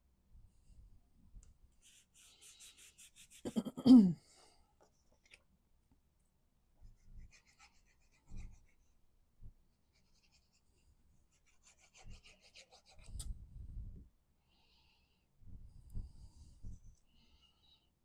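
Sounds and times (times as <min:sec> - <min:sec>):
glue bottle tip scratching card: 0:01.8 - 0:03.6.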